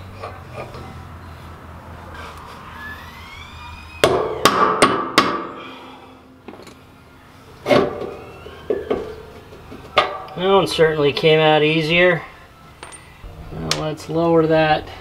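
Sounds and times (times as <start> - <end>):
hammer striking metal: 4.0 - 5.6.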